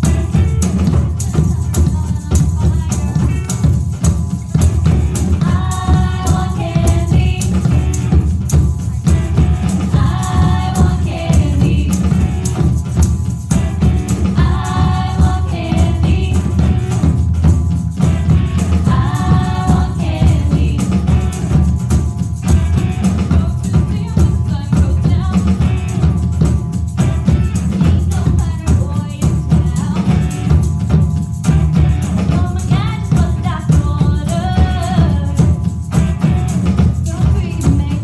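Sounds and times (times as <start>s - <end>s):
live band: 0.0s - 38.0s
tambourine: 0.0s - 38.0s
women singing together: 5.0s - 8.2s, 9.0s - 12.6s, 14.0s - 17.2s, 18.4s - 21.4s, 32.3s - 35.5s.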